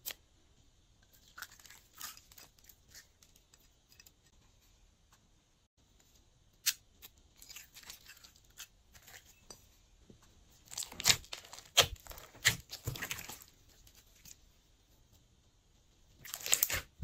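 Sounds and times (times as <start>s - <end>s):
slime crackling and popping: 10.7s - 13.5s, 16.2s - 17.0s.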